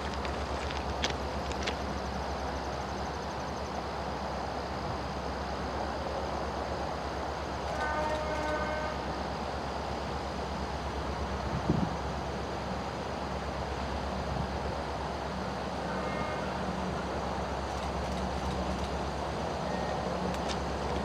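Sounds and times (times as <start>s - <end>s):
diesel locomotives droning: 0.0s - 21.0s
locomotive horn: 7.7s - 9.2s, 15.8s - 16.8s.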